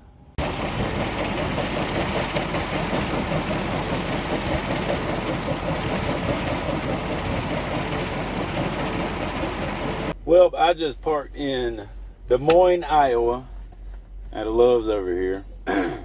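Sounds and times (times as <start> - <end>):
wind turbine blades whirring: 0.4 - 10.2.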